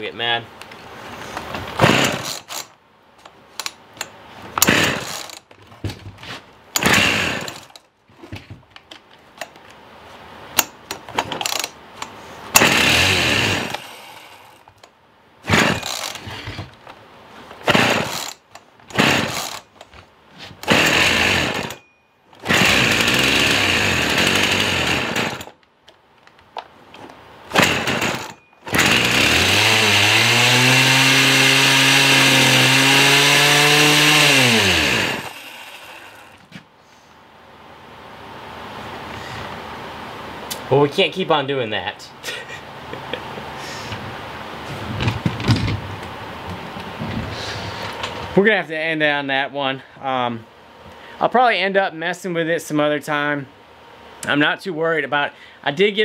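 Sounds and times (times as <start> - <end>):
chainsaw pull-starting: 1.2 - 2.8, 3.6 - 5.5, 6.8 - 7.8, 10.6 - 11.8, 12.5 - 14.7, 15.5 - 16.6, 17.6 - 19.9, 20.6 - 21.8, 22.4 - 25.6, 27.5 - 36.4
chainsaw engine running: 1.8 - 2.7, 4.6 - 5.4, 6.8 - 7.8, 12.6 - 14.6, 15.5 - 16.4, 17.6 - 19.7, 20.6 - 21.8, 22.4 - 25.6, 27.5 - 36.4.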